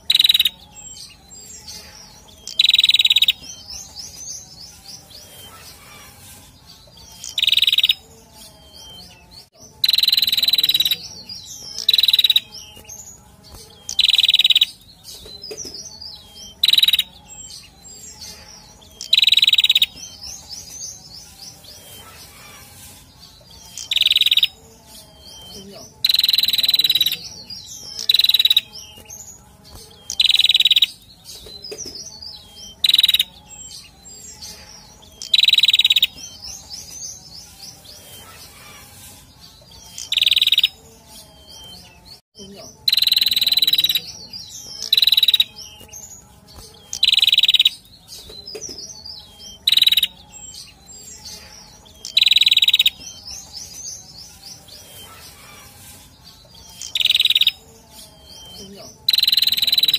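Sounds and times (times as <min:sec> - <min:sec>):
soft bird twittering: 0:00.0 - 0:42.2, 0:42.8 - 0:59.9.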